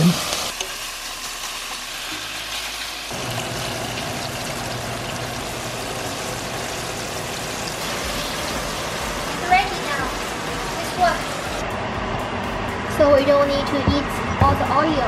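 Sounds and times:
bacon sizzling in a pan: 0:00.0 - 0:11.6.

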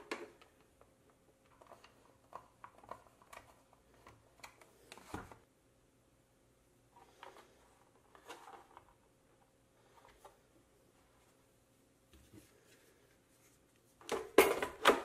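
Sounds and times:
plastic parts clicking and knocking: 0:00.0 - 0:05.4, 0:14.0 - 0:15.0.

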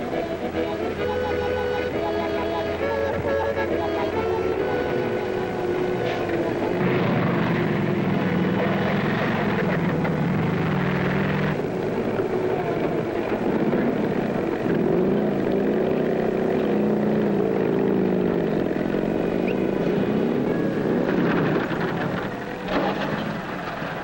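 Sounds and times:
vehicle engines droning: 0:00.0 - 0:24.0.

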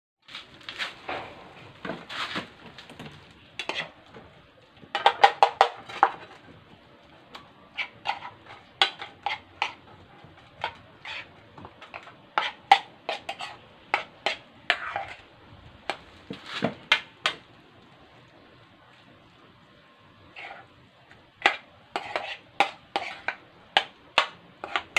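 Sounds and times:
spoon scraping a frying pan: 0:03.6 - 0:04.3, 0:04.9 - 0:06.4, 0:07.4 - 0:15.3, 0:20.2 - 0:24.9.

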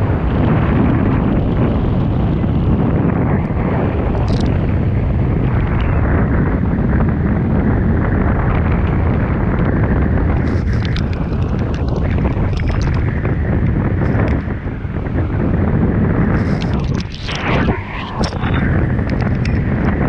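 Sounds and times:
wind buffeting microphone: 0:00.0 - 0:20.0
sharp crackles: 0:10.3 - 0:14.5, 0:16.4 - 0:20.0.

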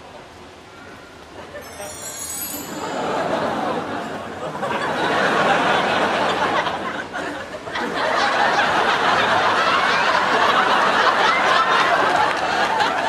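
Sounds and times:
studio audience laughing: 0:02.8 - 0:13.0.

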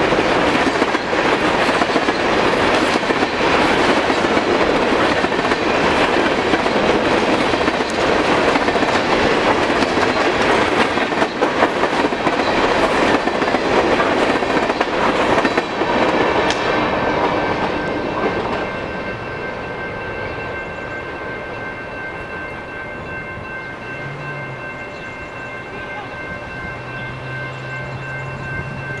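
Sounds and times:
train wheel clatter: 0:00.0 - 0:20.8
train rumble: 0:00.0 - 0:29.0
thin steady ringing: 0:17.7 - 0:29.0.

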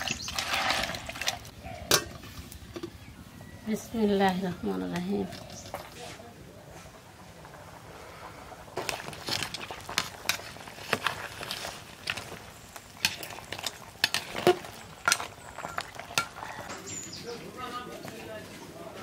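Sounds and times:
faint sizzle of curry: 0:01.6 - 0:19.0
metal spatula scraping pot: 0:08.8 - 0:12.4, 0:13.0 - 0:16.5.

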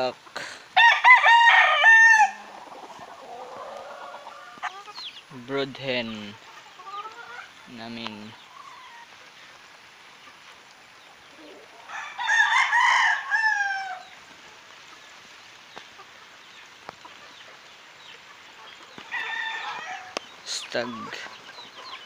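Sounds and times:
rooster crowing: 0:00.8 - 0:04.7, 0:11.7 - 0:14.1, 0:19.1 - 0:20.2.

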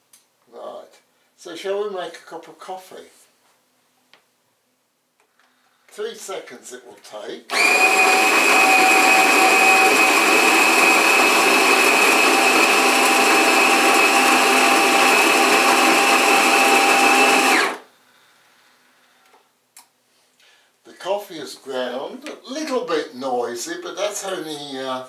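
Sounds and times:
coffee grinder whirring: 0:07.5 - 0:17.9.

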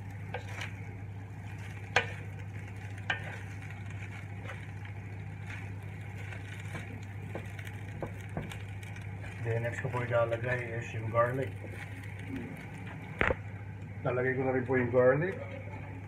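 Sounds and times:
wooden spatula scraping a pan: 0:00.0 - 0:12.7
faint sizzle: 0:00.0 - 0:16.0
steady low hum: 0:00.0 - 0:16.0.

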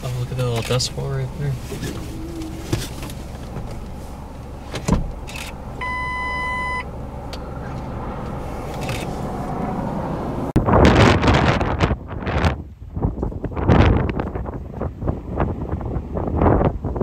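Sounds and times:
car engine idling: 0:00.0 - 0:10.5
electronic beep: 0:05.8 - 0:06.9
wind buffeting microphone: 0:06.9 - 0:17.0.

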